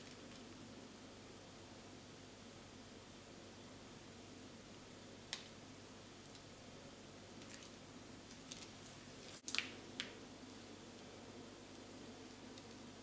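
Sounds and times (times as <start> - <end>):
plastic piping bag crinkling: 7.4 - 10.2.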